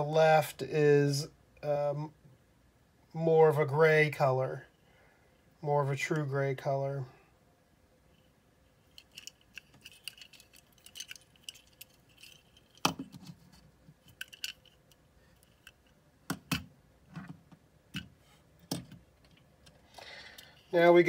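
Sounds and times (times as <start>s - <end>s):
metal toys clicking on tabletop: 14.1s - 15.8s.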